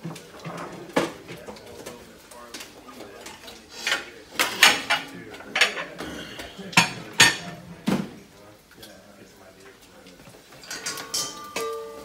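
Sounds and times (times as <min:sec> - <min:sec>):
faint background voices: 0:00.0 - 0:11.8
kitchen items knocking and clinking: 0:06.8 - 0:08.2, 0:10.6 - 0:12.0.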